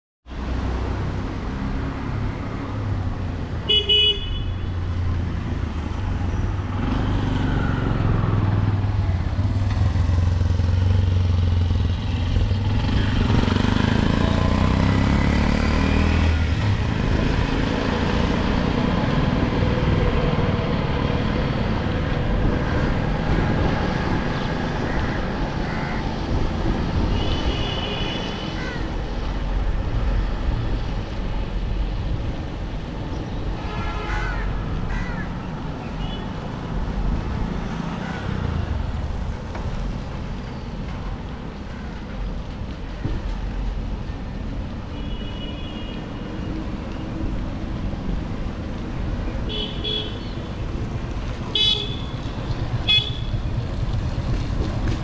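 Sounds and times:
traffic rumble: 0:00.3 - 0:55.0
vehicle horn tooting: 0:03.7 - 0:04.7, 0:51.6 - 0:52.2, 0:52.9 - 0:53.4.

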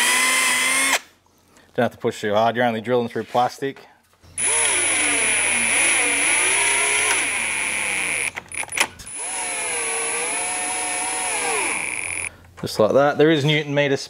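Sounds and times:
power drill whining: 0:00.0 - 0:01.0, 0:04.4 - 0:12.3.

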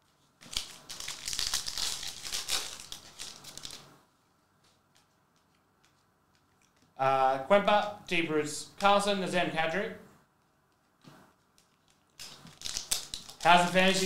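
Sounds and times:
foil wrapper crinkling: 0:00.2 - 0:03.9, 0:11.4 - 0:14.0
faint ticks of cards handled: 0:04.6 - 0:07.0.

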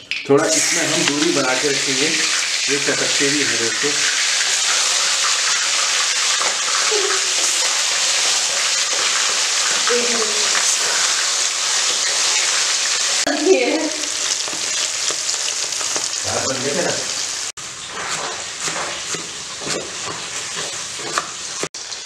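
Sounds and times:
fish deep-frying in hot oil: 0:00.1 - 0:22.0
knife chopping on wooden board: 0:18.1 - 0:21.3.

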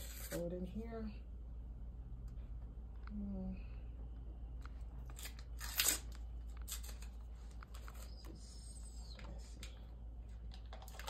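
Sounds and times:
paper wrapper crinkling: 0:05.0 - 0:08.3.

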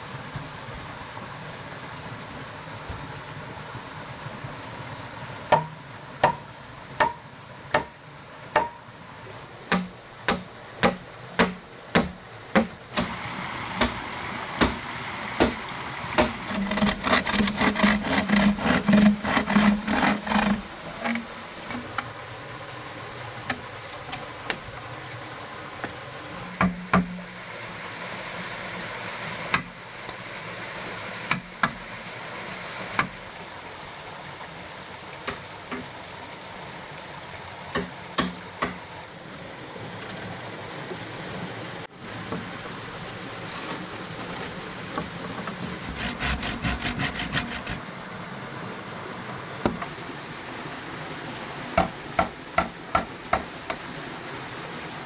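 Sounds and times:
stream running: 0:00.0 - 0:55.0
knocks and scraping on bamboo: 0:05.5 - 0:08.8, 0:09.7 - 0:13.2, 0:13.8 - 0:14.0, 0:15.4 - 0:22.2, 0:25.8 - 0:27.4, 0:29.5 - 0:29.8, 0:31.3 - 0:31.9, 0:32.9 - 0:33.2, 0:43.5 - 0:47.8, 0:51.8 - 0:53.8
hand saw cutting bamboo: 0:16.2 - 0:22.0, 0:45.8 - 0:47.8.

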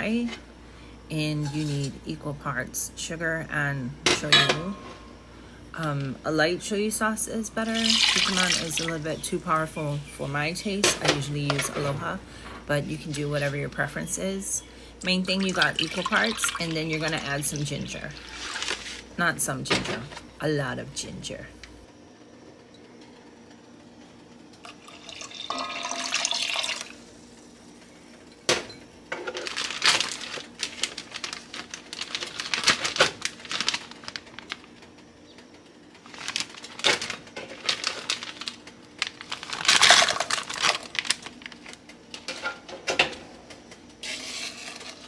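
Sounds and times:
ginger splashing into liquid: 0:07.8 - 0:08.9
liquid pouring into pot: 0:07.8 - 0:08.9, 0:24.7 - 0:27.0.

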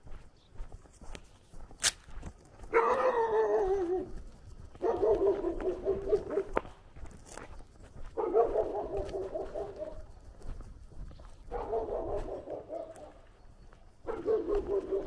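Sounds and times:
sharp click: 0:01.8 - 0:02.1
dog howling: 0:02.8 - 0:04.2, 0:04.9 - 0:06.5.

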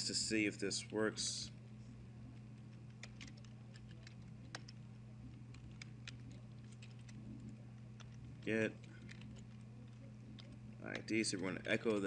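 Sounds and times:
low electrical hum: 0:00.0 - 0:12.0
keyboard keys clicking: 0:02.6 - 0:12.0.

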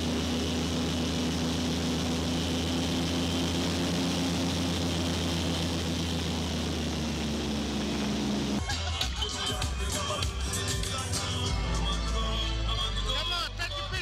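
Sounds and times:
airboat engine droning: 0:00.0 - 0:08.7.

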